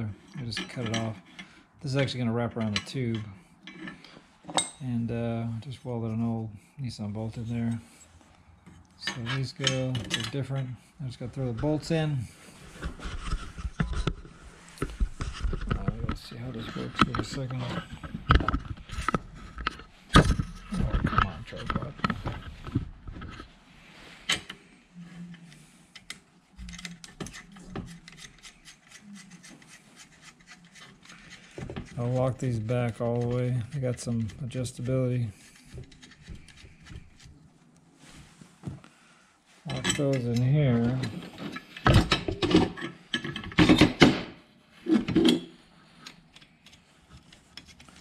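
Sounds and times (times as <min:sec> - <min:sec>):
metal parts clanking and scraping: 0:00.0 - 0:04.8, 0:09.0 - 0:23.5, 0:39.7 - 0:44.0, 0:44.8 - 0:45.7
metal clicks and scraping: 0:00.2 - 0:04.8, 0:12.7 - 0:23.5, 0:25.3 - 0:37.4, 0:44.8 - 0:48.0.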